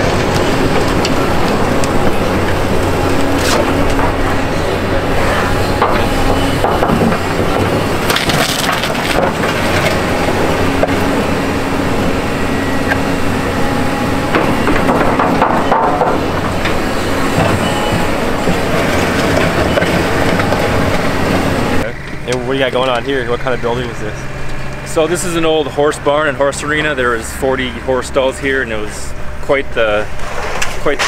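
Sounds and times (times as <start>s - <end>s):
grapple scraping and crunching debris: 0.0s - 11.4s, 14.3s - 21.8s, 30.1s - 31.0s
excavator diesel engine running: 0.0s - 31.0s.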